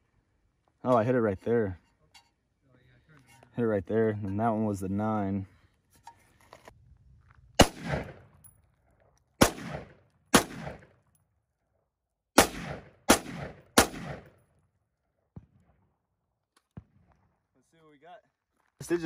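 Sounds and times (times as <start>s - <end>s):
gunshots hitting metal target: 7.6s - 8.3s, 9.4s - 11.0s, 12.4s - 14.4s.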